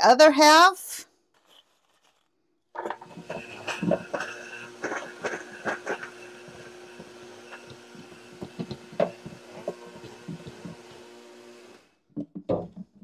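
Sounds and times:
blender motor hum: 2.8 - 12.0.

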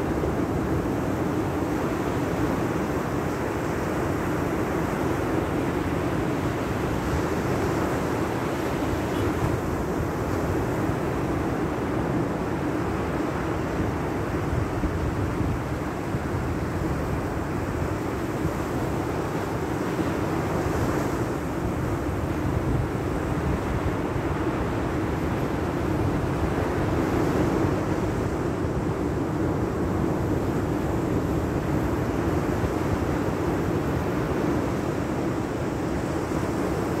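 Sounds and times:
wind on microphone: 0.0 - 37.0.

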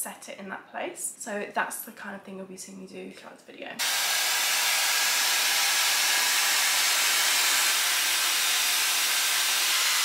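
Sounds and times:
air styler blowing air: 3.8 - 10.0.

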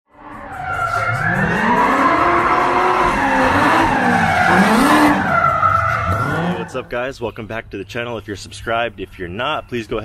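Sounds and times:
car engine revving: 0.1 - 6.9.

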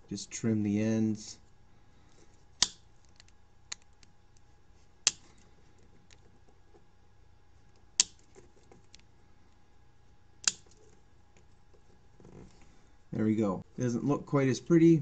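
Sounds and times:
snips clipping plastic: 2.6 - 3.9, 5.0 - 5.3, 8.0 - 8.3.

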